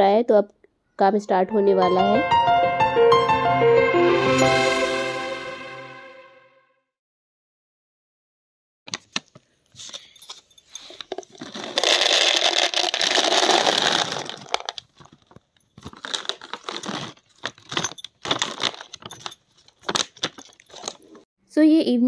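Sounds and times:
packet rustling: 8.9 - 21.2
nuts rattling into plastic container: 11.1 - 21.2.

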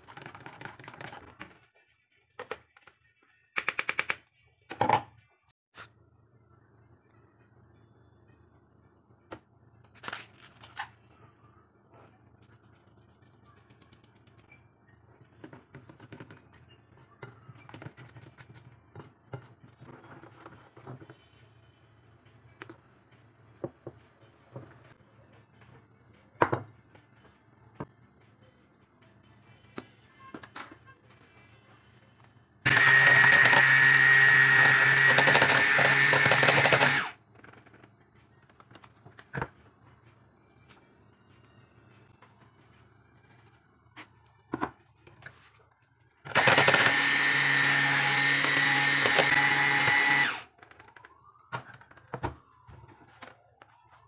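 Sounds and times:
electric hand mixer whining: 32.7 - 37.2, 46.3 - 50.5.

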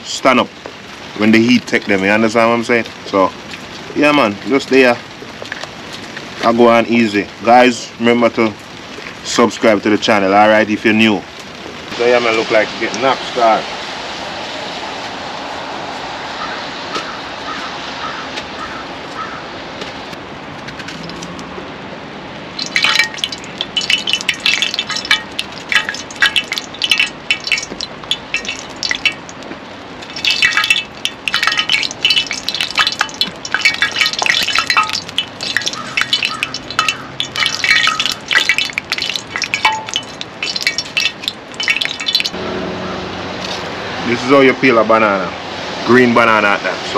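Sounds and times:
steady hiss: 6.1 - 18.1.

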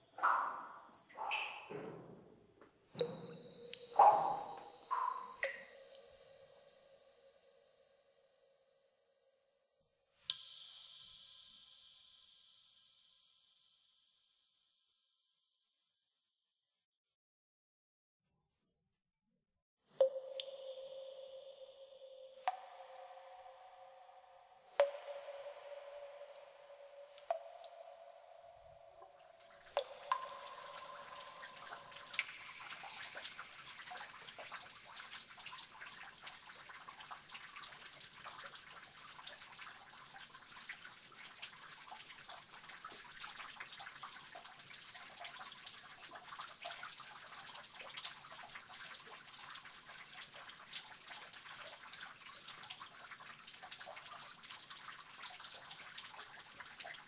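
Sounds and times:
ringing water drips: 0.0 - 7.4, 20.0 - 57.0
water trickling with drips: 0.0 - 7.5, 20.0 - 57.0.

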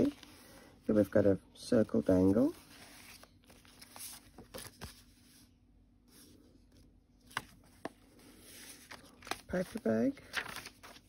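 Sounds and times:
paper pages rustling: 0.0 - 0.4, 2.1 - 5.5, 6.1 - 11.0.

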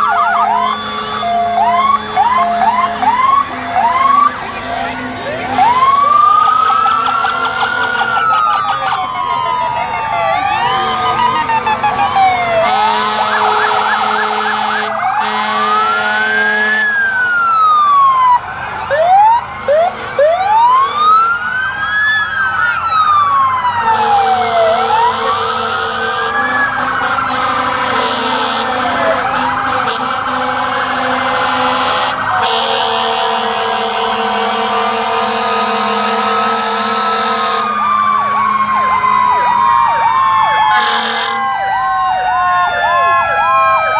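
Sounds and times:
sirens wailing: 0.0 - 43.9
horn blasts: 0.6 - 5.8, 12.6 - 17.0, 25.0 - 38.9, 40.7 - 41.6.

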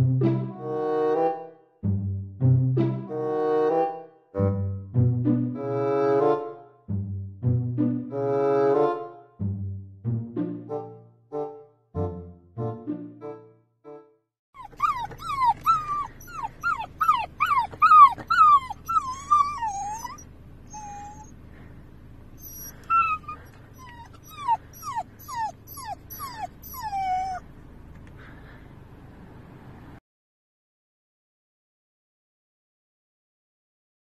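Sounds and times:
puppy whining and yelping: 14.6 - 21.4, 22.4 - 27.5
low car interior hum: 14.6 - 30.0.

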